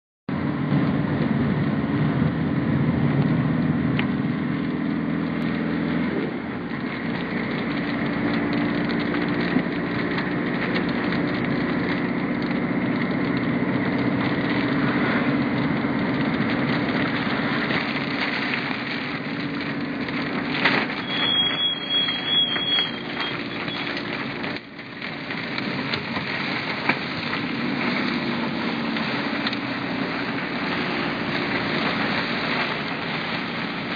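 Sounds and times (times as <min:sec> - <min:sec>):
car engine and tyre noise: 0:00.3 - 0:33.9
rain hitting windscreen and roof: 0:00.3 - 0:33.9
brief high tone: 0:21.0 - 0:23.9.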